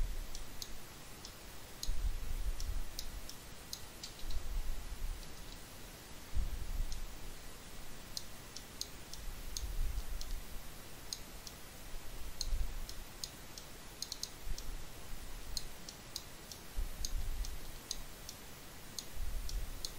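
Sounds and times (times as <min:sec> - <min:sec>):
soft low rumbles: 0:06.3 - 0:07.4
computer mouse clicking: 0:12.4 - 0:14.7.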